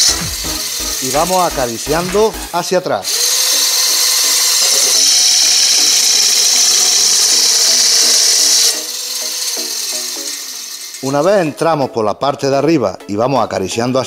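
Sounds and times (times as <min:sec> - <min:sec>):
motor whine: 0:00.0 - 0:02.5, 0:03.1 - 0:11.0
cutting disc grinding branch: 0:00.0 - 0:11.7.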